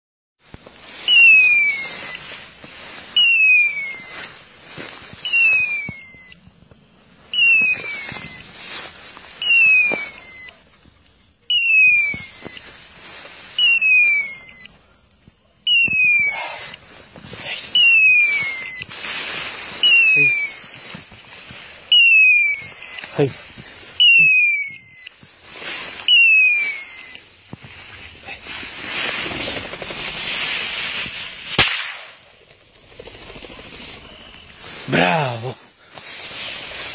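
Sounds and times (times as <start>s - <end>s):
rustling in tall grass: 0.4s - 36.9s
falling electronic beeper tone: 11.5s - 12.7s, 13.6s - 14.7s, 15.7s - 16.8s, 17.7s - 18.9s, 19.8s - 21.0s, 21.9s - 23.3s, 24.0s - 25.1s, 26.0s - 27.2s.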